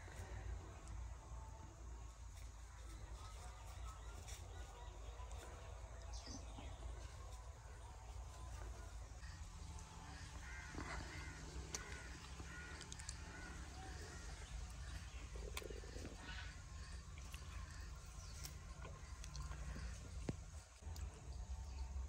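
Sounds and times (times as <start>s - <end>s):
low background rumble: 4.9s - 22.0s
crows cawing: 9.2s - 15.2s.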